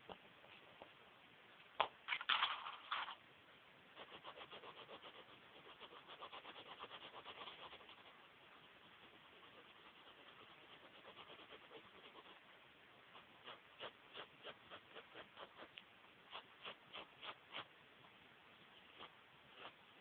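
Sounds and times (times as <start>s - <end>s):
paper rustling: 2.1s - 3.2s
pencil scratching on paper: 4.0s - 12.4s, 13.1s - 17.7s, 18.9s - 19.8s.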